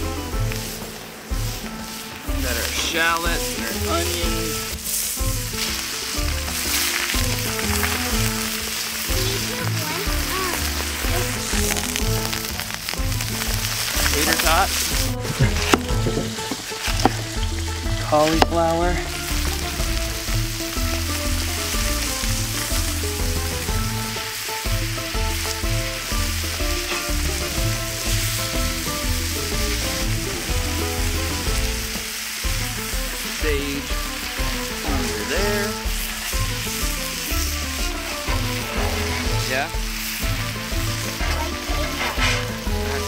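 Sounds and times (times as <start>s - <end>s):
food sizzling on hot griddle: 0.0s - 43.0s.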